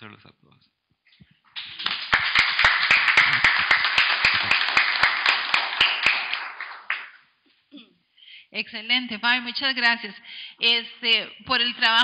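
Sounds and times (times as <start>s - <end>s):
people clapping: 1.5s - 7.4s.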